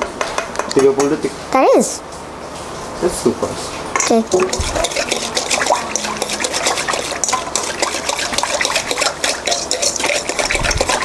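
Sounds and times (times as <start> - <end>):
batter sloshing: 3.6 - 11.0
whisk clinking against metal bowl: 4.0 - 11.0.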